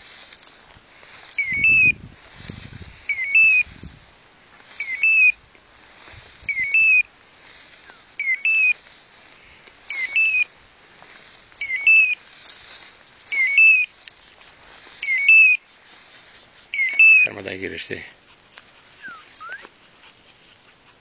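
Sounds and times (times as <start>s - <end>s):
beeper collar chirping: 1.4s - 2.0s, 3.1s - 3.7s, 4.8s - 5.4s, 6.5s - 7.1s, 7.8s - 8.8s, 9.9s - 10.5s, 11.6s - 12.2s, 13.3s - 14.0s, 15.0s - 15.6s, 16.7s - 17.4s, 19.0s - 19.7s.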